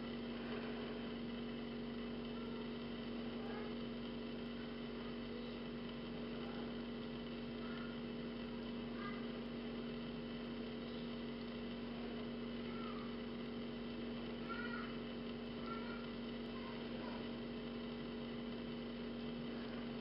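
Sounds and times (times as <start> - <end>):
low electrical hum: 0.0 - 20.0
faint high chirps: 10.7 - 11.2.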